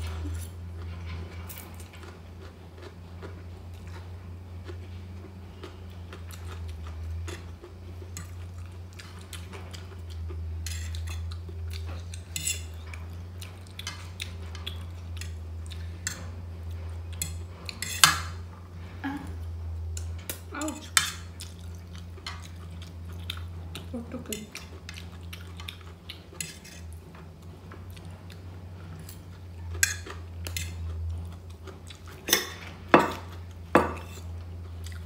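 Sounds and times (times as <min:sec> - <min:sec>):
steady low hum: 0:00.0 - 0:35.0
cutlery clinking on a plate: 0:12.1 - 0:12.9, 0:29.0 - 0:30.9, 0:32.3 - 0:34.3.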